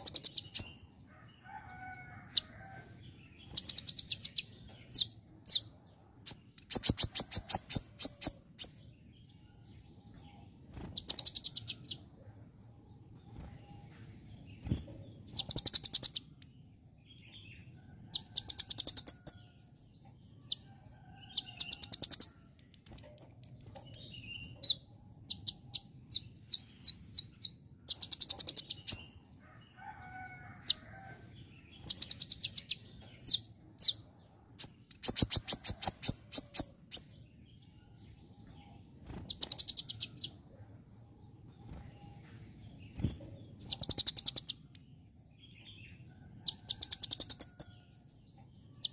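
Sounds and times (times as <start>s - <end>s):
sharp bird chirps: 3.4s - 8.8s, 10.7s - 12.0s, 14.6s - 16.5s, 21.4s - 29.2s, 31.7s - 34.0s, 34.6s - 37.2s, 39.0s - 40.4s, 42.9s - 44.9s.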